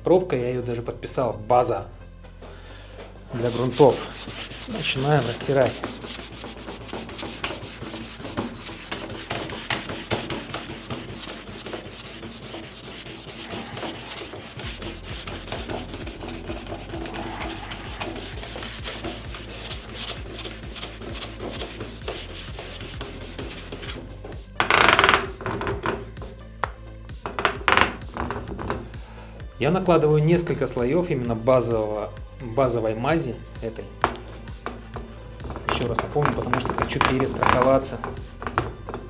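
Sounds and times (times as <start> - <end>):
cork scrubbing on ski: 3.3 - 24.0.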